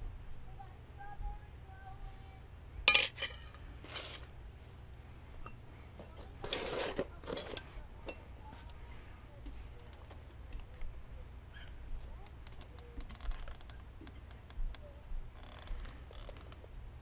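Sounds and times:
steady low hum: 0.0s - 17.0s
metal tools clinking and rattling: 2.9s - 4.3s, 5.4s - 8.3s.

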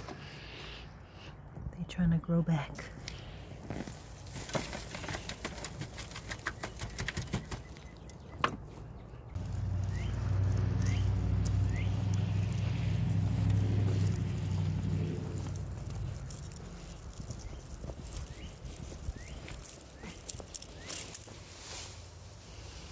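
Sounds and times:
dry vines crackling and rustling: 2.8s - 22.9s
low engine hum: 7.8s - 22.9s.

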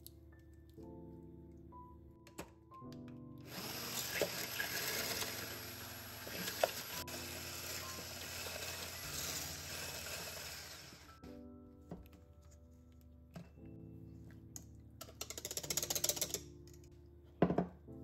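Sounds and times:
immersion blender whisking cream: 3.5s - 11.1s.

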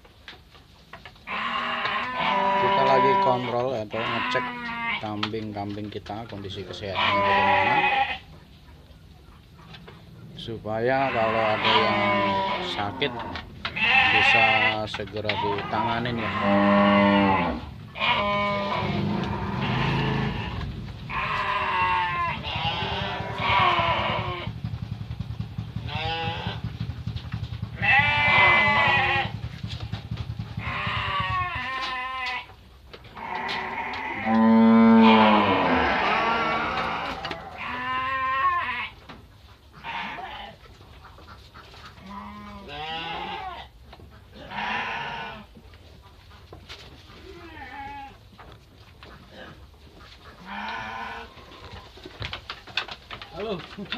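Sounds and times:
sheep bleating: 1.2s - 5.1s, 6.8s - 8.3s, 10.9s - 24.5s, 25.9s - 26.6s, 27.8s - 29.4s, 30.6s - 32.5s, 33.1s - 39.0s, 39.8s - 40.6s, 42.0s - 43.7s, 44.3s - 45.5s, 47.2s - 48.2s, 50.4s - 51.4s.

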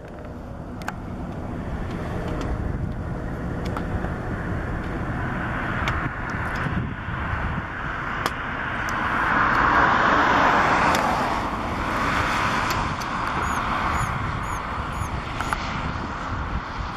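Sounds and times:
road traffic rushing: 0.0s - 16.9s
faint high chirps: 13.4s - 15.1s.

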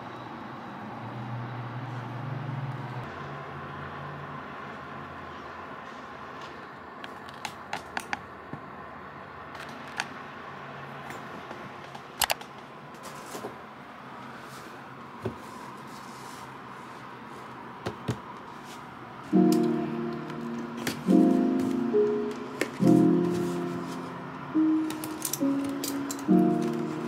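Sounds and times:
faint room hiss: 12.7s - 27.0s.

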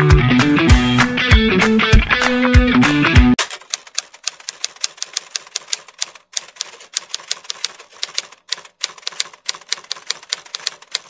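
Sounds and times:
typewriter key clacks: 3.4s - 11.0s.

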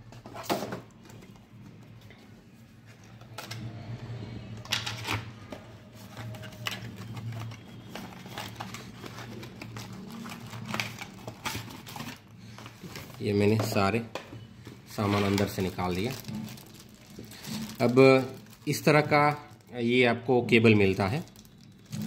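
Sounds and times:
packaging taps and rustles: 4.7s - 19.6s.

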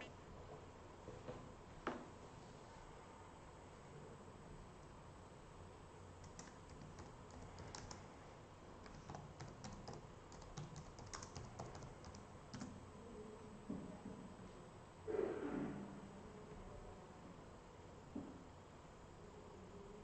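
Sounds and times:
low steady hiss: 0.0s - 20.0s
typing on computer keyboard: 6.2s - 8.1s, 8.8s - 12.8s.

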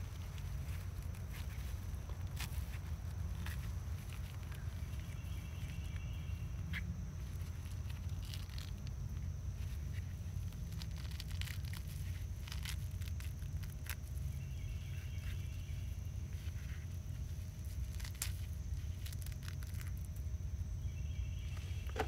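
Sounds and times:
hands rustling soil: 0.0s - 22.0s
steady low rumble: 0.0s - 22.0s
plastic pots clicking: 21.8s - 22.0s.

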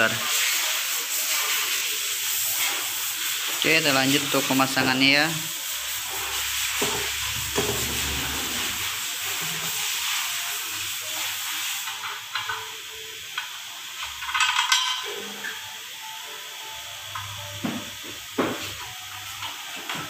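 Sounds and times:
steady hissing noise: 0.0s - 20.0s
metal parts clicking and clattering: 14.2s - 15.2s.

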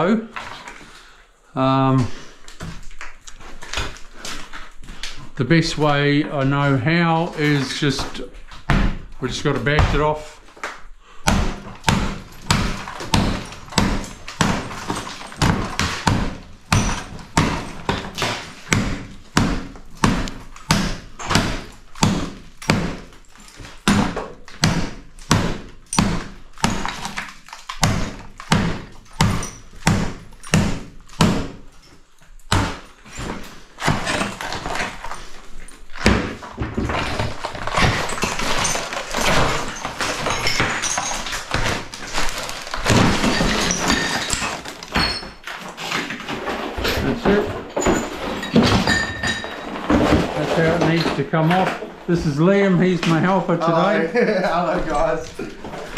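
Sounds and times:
sheeting cracking and scraping: 2.2s - 55.9s.

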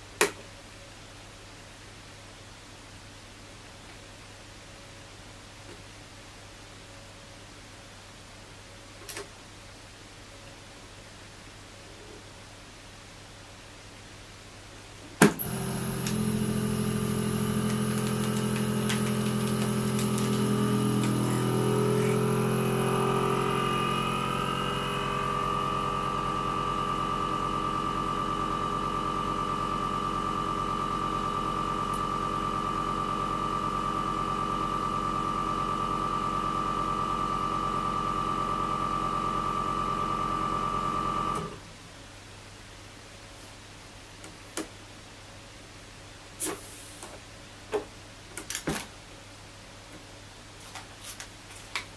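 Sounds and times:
vacuum sealer pump humming: 15.2s - 41.6s.

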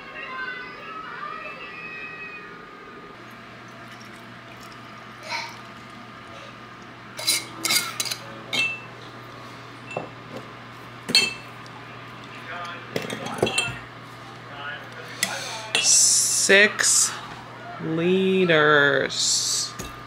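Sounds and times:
glass jars clinking: 11.1s - 11.5s, 13.0s - 13.8s.

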